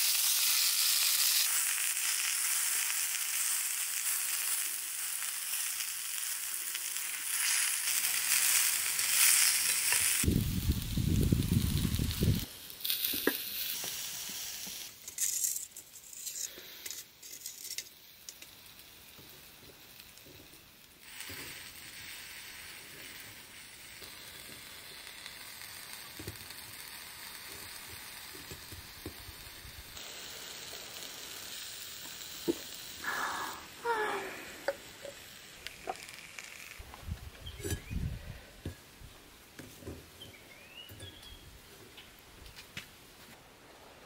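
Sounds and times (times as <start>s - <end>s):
vegetables sizzling in skillet: 0.0s - 39.6s.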